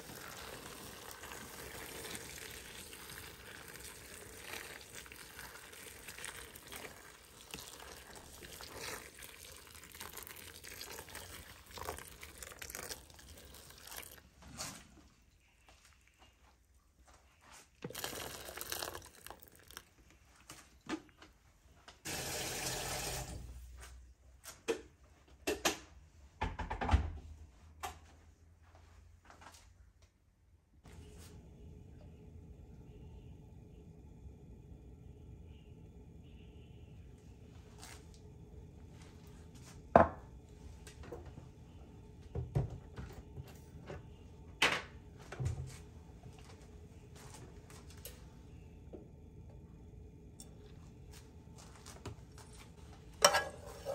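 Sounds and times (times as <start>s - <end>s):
tap water running into bowl: 0.0s - 14.2s, 17.8s - 19.9s, 22.1s - 23.4s.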